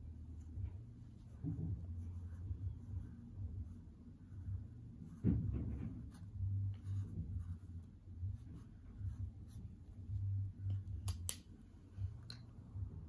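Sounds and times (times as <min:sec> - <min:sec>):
marker scratching on paper towel: 0:05.1 - 0:09.9
soft bumps on table: 0:05.2 - 0:06.2.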